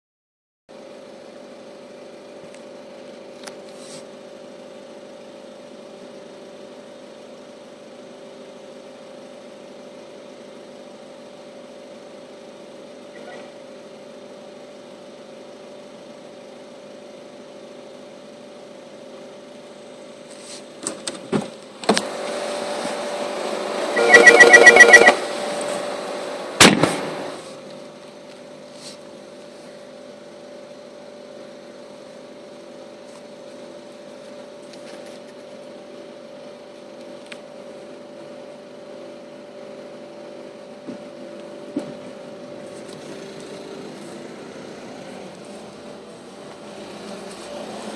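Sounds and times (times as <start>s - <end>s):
electric hum: 23.0s - 28.1s
pulsing buzzer: 23.9s - 25.2s.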